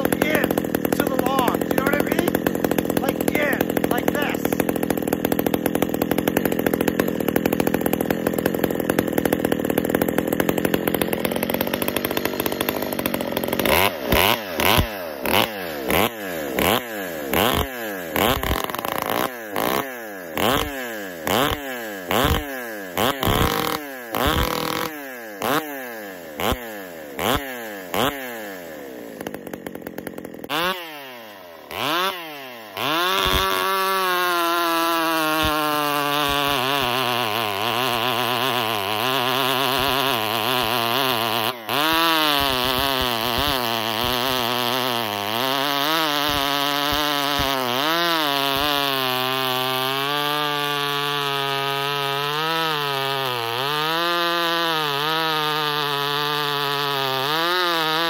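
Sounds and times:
chainsaw cutting a log: 0.0 - 58.0.

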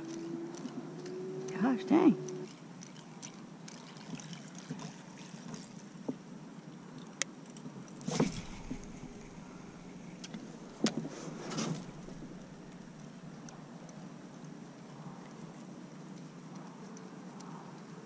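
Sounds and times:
bumps on kayak: 8.1 - 12.9.

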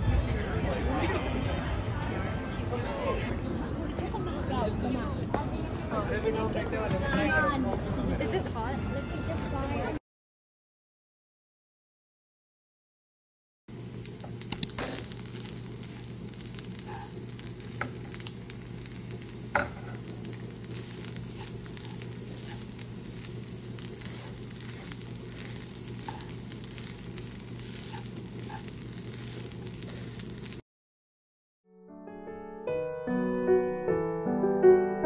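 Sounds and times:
rice sizzling in a frying pan: 13.7 - 30.6
spatula scraping a pan: 14.6 - 30.6.

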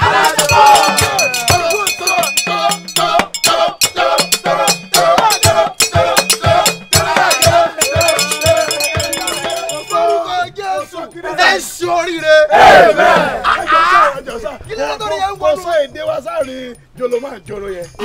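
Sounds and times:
hand percussion beating: 0.0 - 12.2
handbells ringing: 0.0 - 12.2, 14.6 - 18.0
men singing church chorus: 0.0 - 15.2.

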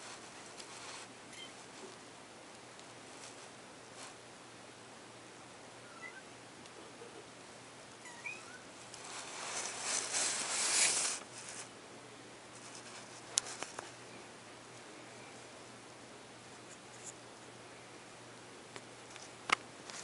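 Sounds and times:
kitten rustling against microphone: 0.0 - 1.9, 9.0 - 11.7, 12.5 - 14.0
kitten mewing: 8.0 - 8.6.

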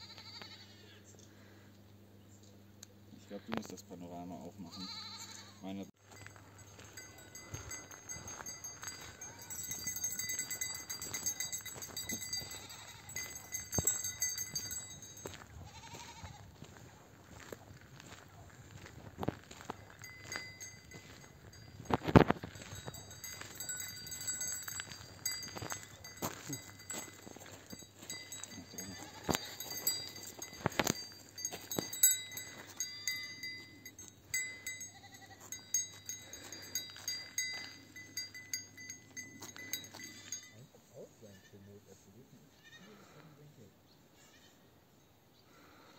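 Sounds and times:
goats bleating: 0.0 - 0.9, 4.6 - 5.6, 9.2 - 14.8, 15.6 - 16.5, 28.1 - 30.1, 34.6 - 35.7, 42.5 - 43.2
goat bleating faintly: 0.0 - 1.0, 4.5 - 5.9, 15.6 - 16.5, 40.0 - 43.5
high ringing tone: 4.8 - 16.4, 19.2 - 40.8.

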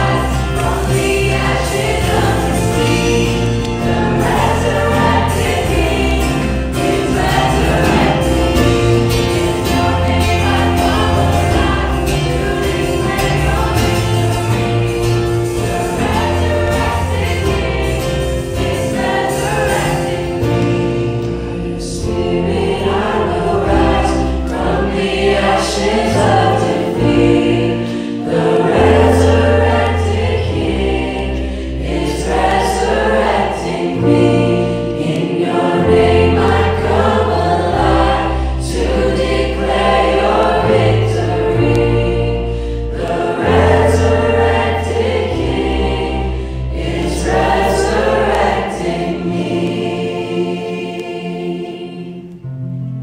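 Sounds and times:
electric bass: 0.0 - 25.6
acoustic guitar: 0.0 - 45.0
group of voices singing: 0.0 - 52.5.

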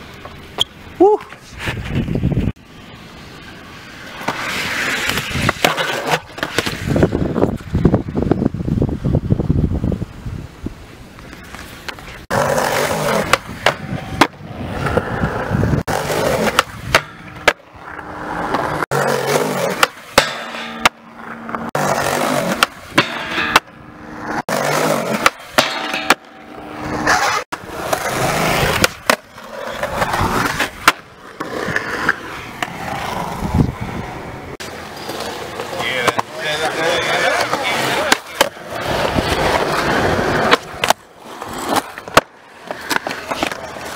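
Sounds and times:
skateboard wheels rolling on concrete: 0.0 - 43.9
skateboard clacking on ground: 4.2 - 7.9, 11.2 - 15.2, 15.9 - 33.1, 34.6 - 43.9.

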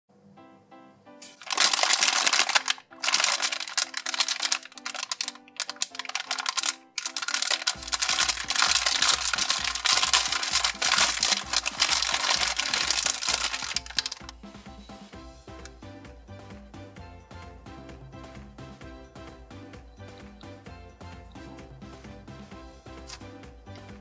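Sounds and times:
plastic bag crinkling: 1.2 - 14.3
background music with bass beat: 14.2 - 24.0.

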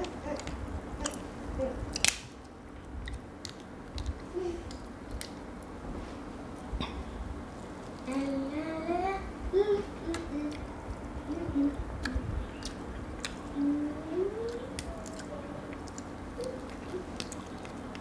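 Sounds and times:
close-up chewing: 1.9 - 5.4, 11.9 - 18.0
lobster shell cracking: 2.0 - 2.5.

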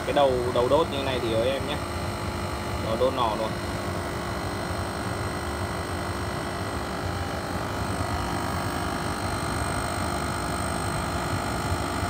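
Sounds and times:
blower fan humming: 0.0 - 12.0
faint high whine: 2.8 - 4.4.

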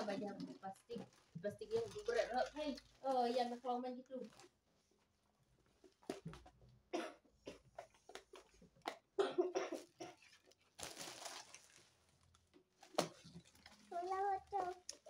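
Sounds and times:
crinkly peeling rustle: 0.0 - 5.1, 10.2 - 15.0.

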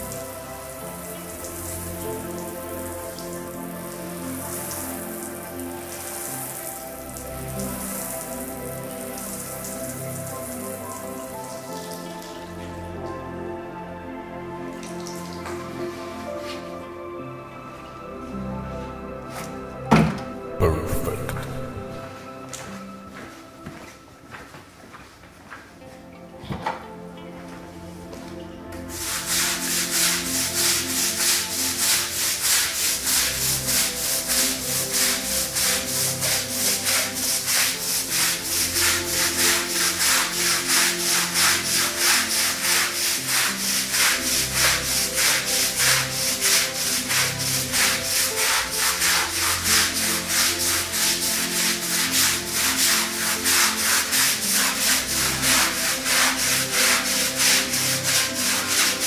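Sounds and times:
brush scrubbing wet carpet: 0.0 - 12.4, 28.9 - 59.0.

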